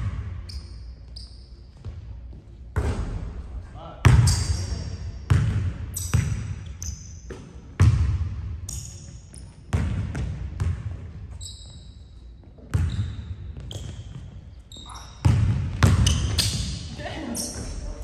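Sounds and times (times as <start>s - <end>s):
sneakers squeaking: 0.0s - 3.2s, 4.0s - 18.0s
basketball bouncing on hardwood: 15.2s - 16.7s.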